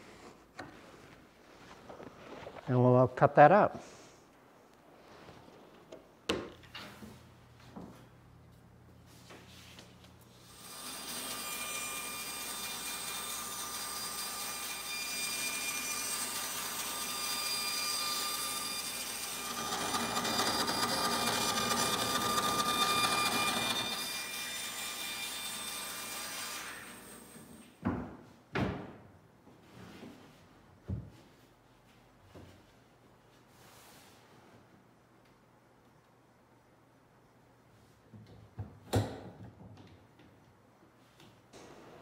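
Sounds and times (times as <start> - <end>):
band saw cutting plywood: 10.5 - 27.4.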